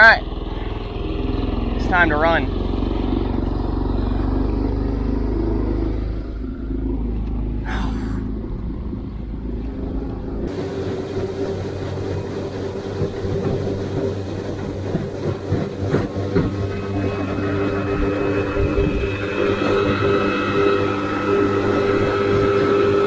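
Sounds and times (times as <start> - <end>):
outboard motor running: 0.0 - 23.0
wind: 0.0 - 23.0
water rushing past hull: 7.7 - 23.0.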